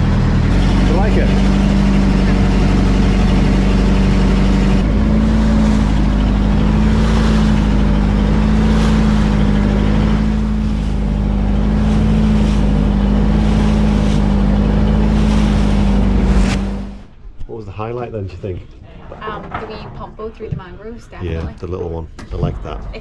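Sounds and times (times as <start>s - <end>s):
water rushing along hull: 0.0s - 17.8s
boat engine drone: 0.0s - 23.0s.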